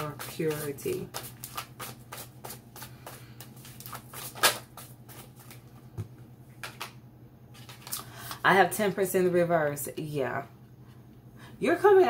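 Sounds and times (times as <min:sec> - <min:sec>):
cards being shuffled: 0:00.0 - 0:05.8, 0:06.5 - 0:08.0.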